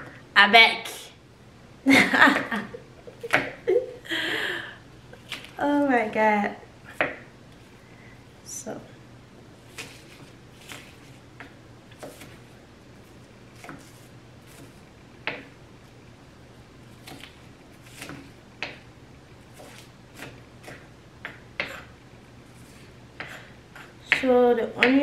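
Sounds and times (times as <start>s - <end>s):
knife cutting on a cutting board: 12.0s - 12.5s, 13.6s - 15.4s, 16.9s - 18.8s, 19.5s - 22.0s, 22.6s - 24.0s.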